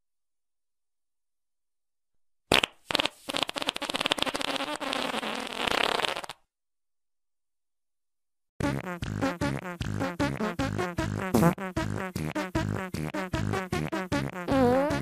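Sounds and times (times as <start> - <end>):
cartoon fart: 2.5 - 6.5, 8.6 - 15.0.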